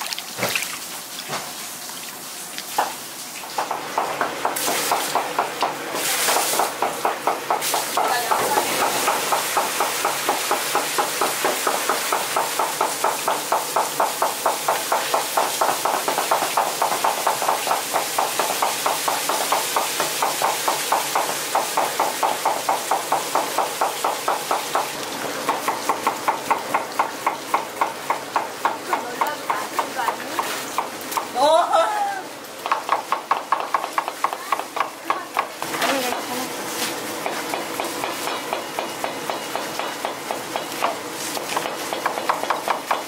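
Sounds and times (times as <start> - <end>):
water running and spilling: 0.0 - 3.8, 4.5 - 5.3, 5.9 - 6.8, 7.6 - 32.6.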